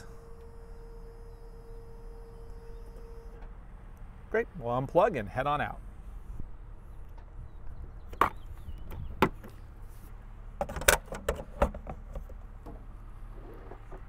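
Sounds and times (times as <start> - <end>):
steady low hum: 0.0 - 14.0
plastic clicks and clunks: 10.6 - 12.8.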